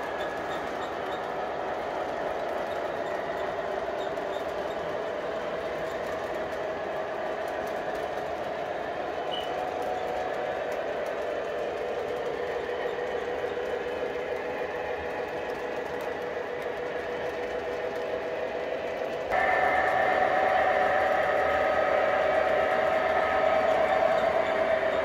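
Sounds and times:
model train wheels rolling: 0.0 - 25.0
motor whine: 19.3 - 25.0.

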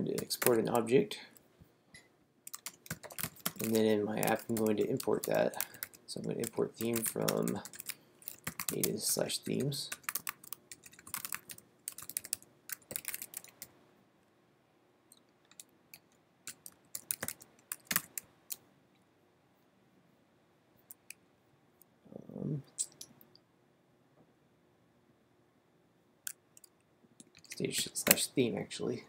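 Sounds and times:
computer keyboard typing: 2.5 - 13.7, 15.5 - 18.6.

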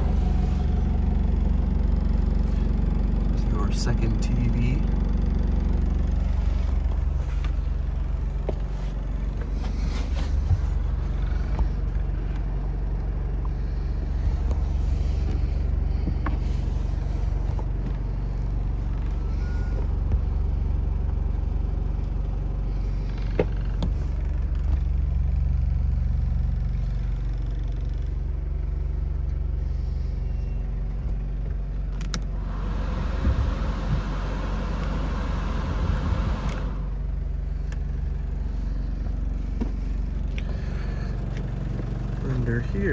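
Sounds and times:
diesel engine idling: 0.0 - 42.9
air rushing from vents: 32.3 - 36.9.

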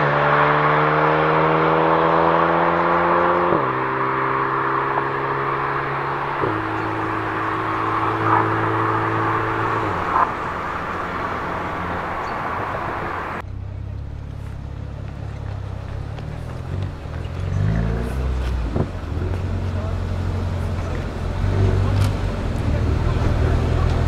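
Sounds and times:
road traffic passing cars: 0.0 - 24.0
car engine idling: 3.3 - 24.0.

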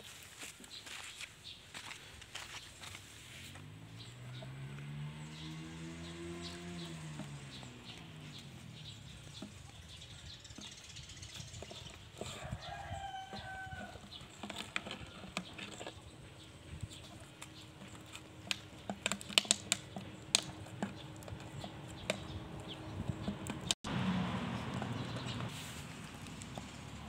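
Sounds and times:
rooster crowing: 12.3 - 14.0.

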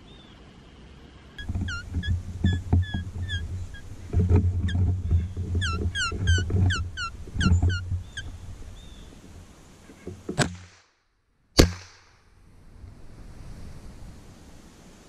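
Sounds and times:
quick falling chirps: 1.4 - 9.2
sharp gunshot: 10.4 - 10.9, 11.6 - 12.2.

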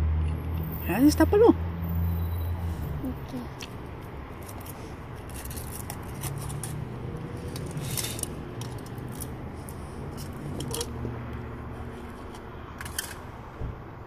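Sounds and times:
foil wrapper crinkling: 4.4 - 6.8.

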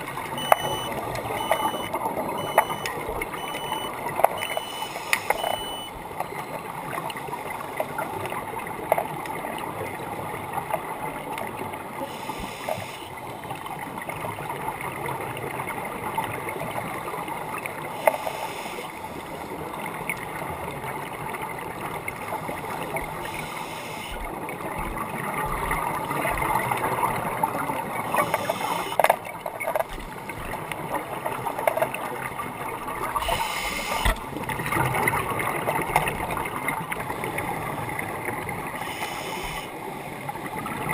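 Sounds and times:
crackling underwater: 0.0 - 40.9
regulator inhale hiss: 4.8 - 5.4, 12.1 - 13.1, 18.0 - 18.9, 23.3 - 24.2, 28.1 - 29.0, 33.2 - 34.2, 38.8 - 39.8.

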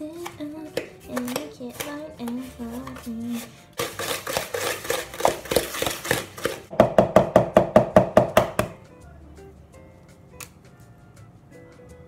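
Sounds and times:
faint background music: 0.0 - 12.0
spoon beating mixture in bowl: 0.1 - 8.8.

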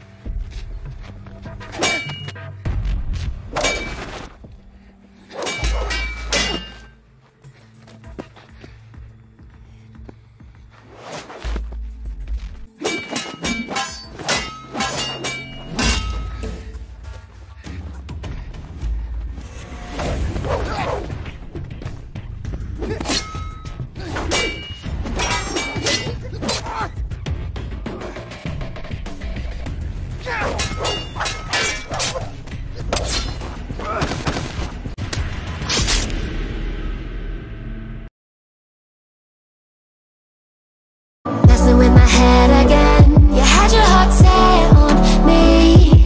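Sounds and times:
background music: 0.0 - 35.9, 41.3 - 46.0
metal blades clashing: 1.7 - 2.4, 3.6 - 4.2, 5.3 - 7.0, 12.8 - 16.7, 22.9 - 26.8, 30.2 - 34.0.

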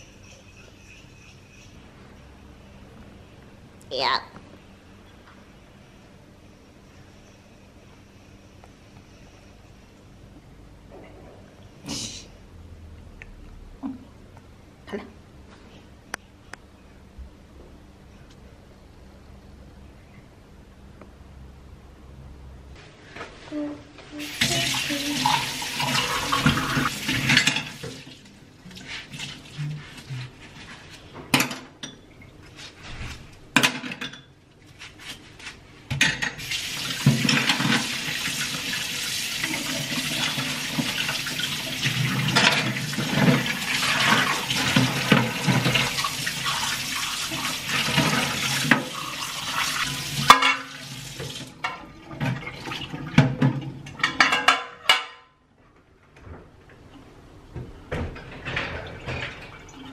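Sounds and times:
dishes clinking and knocking: 25.2 - 28.0, 37.0 - 37.9, 50.2 - 50.8, 53.2 - 55.4, 57.9 - 59.9.

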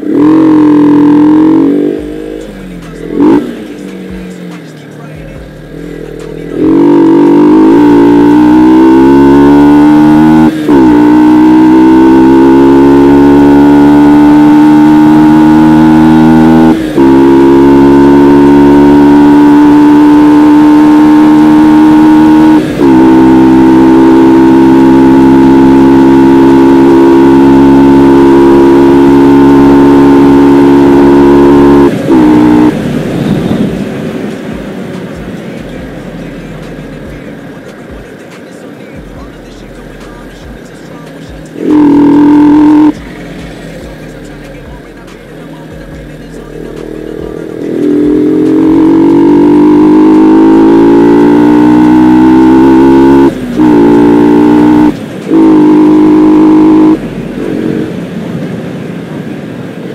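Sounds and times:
motorcycle engine accelerating: 0.0 - 59.9
wind rush: 31.9 - 35.4.

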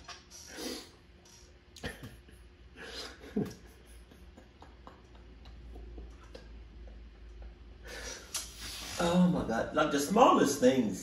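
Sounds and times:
low steady hum: 0.0 - 11.0
man laughing breathily: 1.8 - 6.0.

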